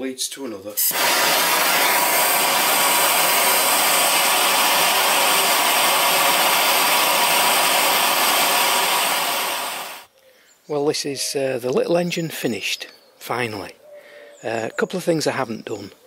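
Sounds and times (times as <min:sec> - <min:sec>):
blowtorch hissing: 0:00.8 - 0:10.1.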